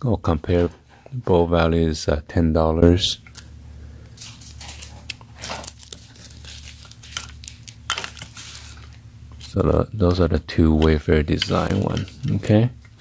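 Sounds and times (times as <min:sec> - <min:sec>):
low steady hum: 0:00.0 - 0:13.0
plastic crinkling: 0:04.1 - 0:09.6, 0:11.4 - 0:12.6.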